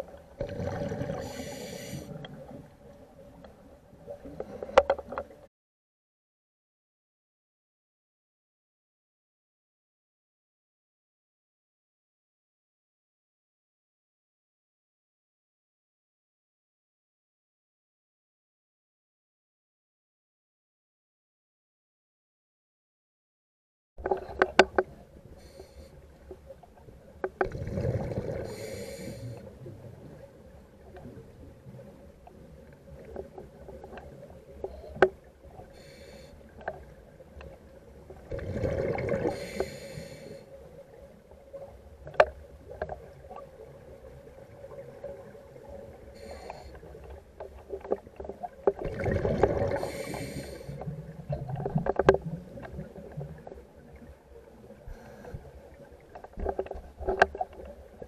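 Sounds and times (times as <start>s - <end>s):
faint steady hum: 24.3s - 58.0s.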